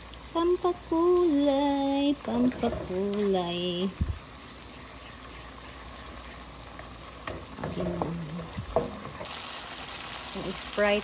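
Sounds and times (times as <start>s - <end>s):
food sizzling in a pan: 0.0s - 11.0s
knock: 8.7s - 9.1s.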